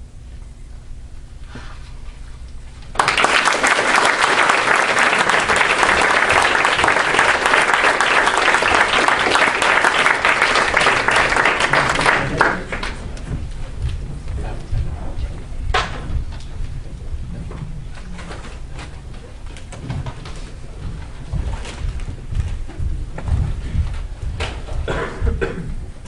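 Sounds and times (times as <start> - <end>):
audience applauding: 2.9 - 13.3.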